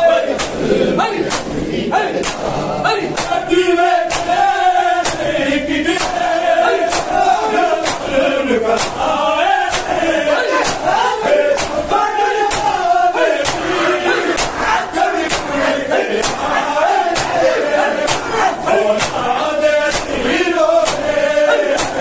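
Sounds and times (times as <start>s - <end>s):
men chanting a lament: 0.0s - 22.0s
hands slapping bare chests: 0.3s - 3.4s, 4.0s - 8.1s, 8.7s - 11.8s, 12.4s - 19.3s, 19.9s - 20.2s, 20.8s - 22.0s.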